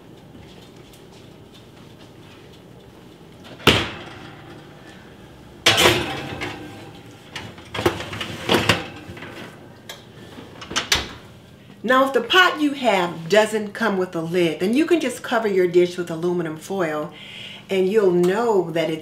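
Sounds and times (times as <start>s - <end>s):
heavy pot clattering on oven rack: 3.5s - 9.6s.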